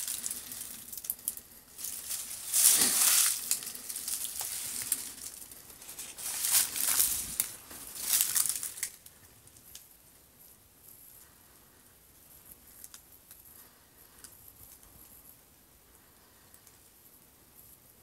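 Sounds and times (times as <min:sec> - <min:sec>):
footsteps crunching on dry leaves: 0:01.7 - 0:09.0.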